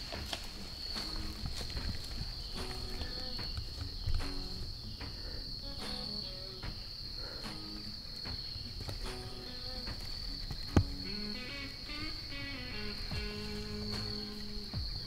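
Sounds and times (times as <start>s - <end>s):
crickets chirping: 0.0s - 15.0s
soft background music: 0.0s - 15.0s.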